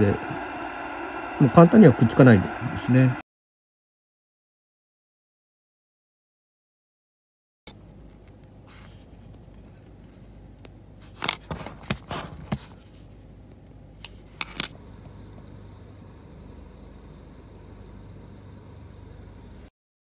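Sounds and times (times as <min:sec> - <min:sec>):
steady low hum: 0:00.0 - 0:03.2, 0:12.7 - 0:19.7.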